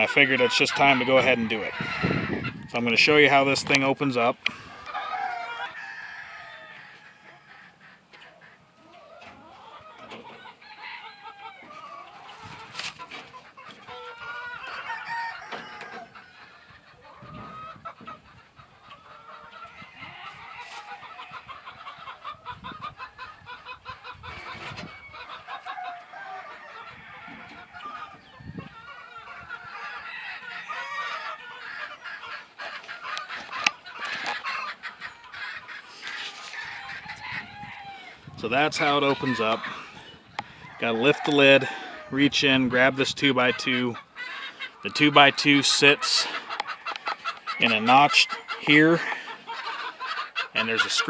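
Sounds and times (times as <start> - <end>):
chickens clucking: 0.0 - 51.0
rooster crowing: 1.4 - 2.6, 4.9 - 7.8, 14.3 - 16.4, 24.8 - 27.9, 29.7 - 31.4, 36.4 - 38.3.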